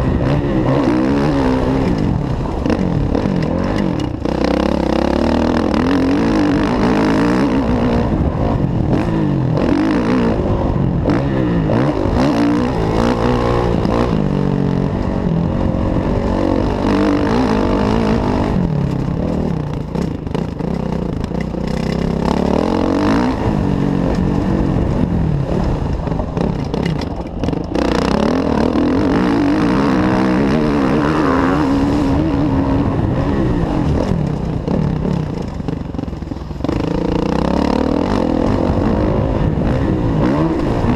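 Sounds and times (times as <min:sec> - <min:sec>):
motocross bike engine revving: 0:00.0 - 0:40.9.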